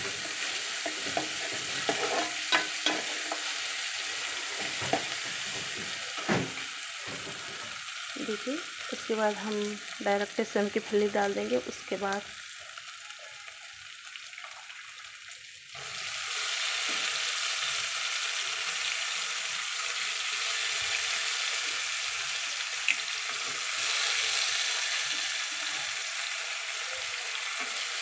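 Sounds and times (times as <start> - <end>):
food sizzling in oil: 0.0 - 28.0.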